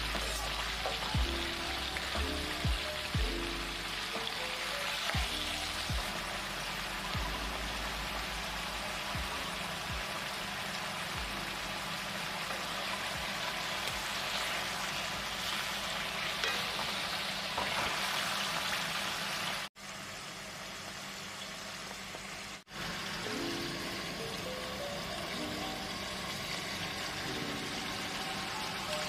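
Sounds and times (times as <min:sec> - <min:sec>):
food sizzling in a wok: 0:00.0 - 0:29.0
metal spatula stir-frying: 0:12.3 - 0:18.6.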